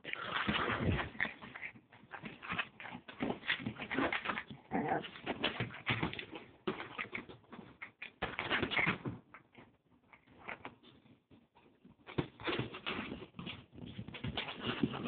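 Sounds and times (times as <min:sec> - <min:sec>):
dog vocal noises: 0:00.0 - 0:05.9.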